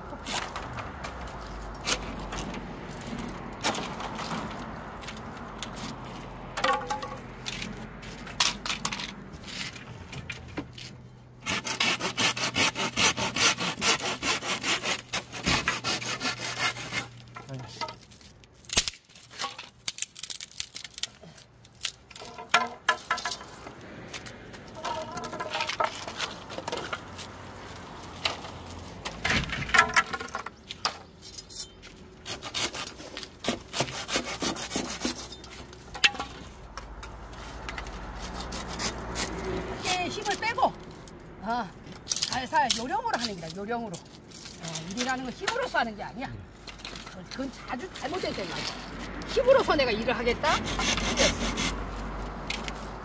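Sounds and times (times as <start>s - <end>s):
bamboo poles knocking together: 6.5s - 10.8s, 17.3s - 27.3s, 28.1s - 31.1s, 33.5s - 38.4s
hand saw cutting bamboo: 11.4s - 18.0s, 32.2s - 40.7s, 46.8s - 53.0s.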